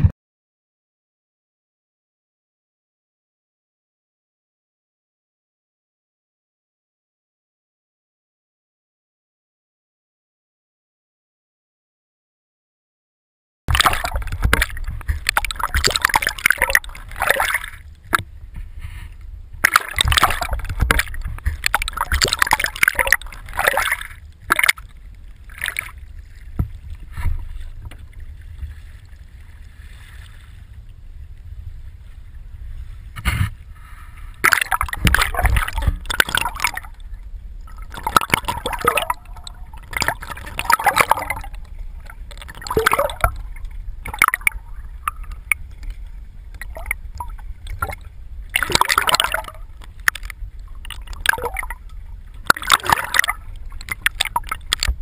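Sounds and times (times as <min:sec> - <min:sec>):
sea water splashing: 0:13.7 - 0:55.0
low rumble: 0:14.0 - 0:48.6.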